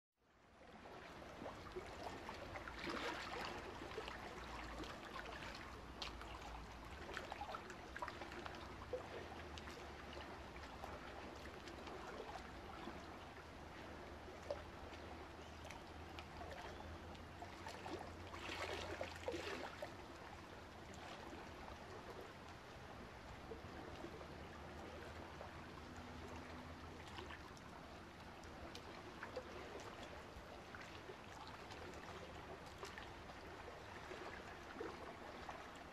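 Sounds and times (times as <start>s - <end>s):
water trickling and splashing: 0.3s - 35.9s.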